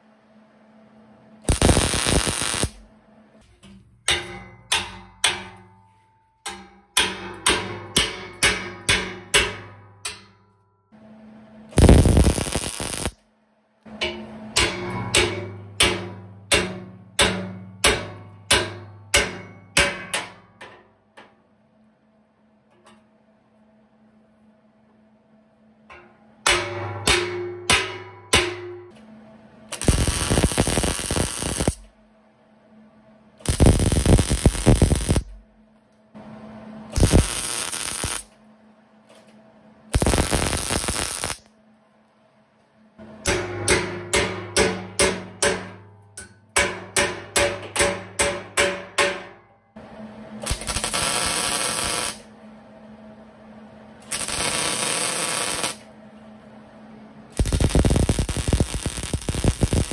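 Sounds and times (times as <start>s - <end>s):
welder crackling: 1.4s - 2.8s, 11.7s - 13.2s, 29.7s - 31.9s, 33.4s - 35.5s, 37.0s - 38.3s, 39.9s - 41.5s, 50.4s - 52.3s, 54.0s - 55.8s, 57.4s - 59.9s
hammer striking steel: 3.6s - 10.7s, 13.9s - 20.9s, 25.9s - 29.0s, 29.7s - 31.9s, 36.9s - 38.3s, 43.0s - 49.6s, 54.0s - 55.8s.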